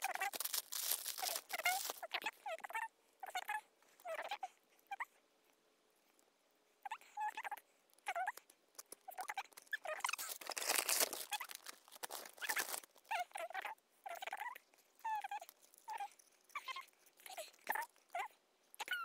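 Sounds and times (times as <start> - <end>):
plastic wrappers rustling and tearing: 0.0 - 2.2, 9.9 - 13.1
squeaky animal calls: 0.0 - 5.0, 9.1 - 19.0.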